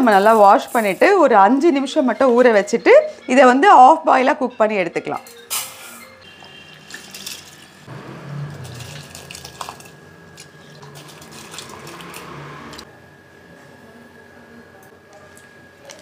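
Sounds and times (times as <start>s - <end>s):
water splashing in a bowl: 6.3s - 7.8s, 8.5s - 12.8s.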